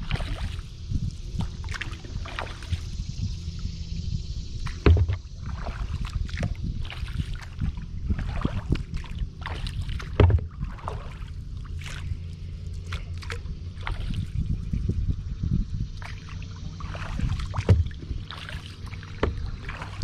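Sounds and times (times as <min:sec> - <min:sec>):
paddle splashing in water: 0:00.0 - 0:00.7, 0:01.3 - 0:02.9, 0:04.6 - 0:12.2, 0:12.8 - 0:14.4, 0:16.0 - 0:20.0
water lapping along hull: 0:00.0 - 0:20.0
low thump: 0:04.6 - 0:05.4, 0:10.1 - 0:10.6, 0:17.6 - 0:18.1, 0:19.2 - 0:19.5.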